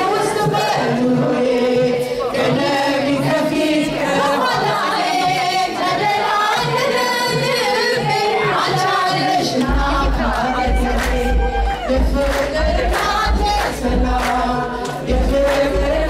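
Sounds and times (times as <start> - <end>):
voices singing a hymn in unison: 0.0 - 16.0.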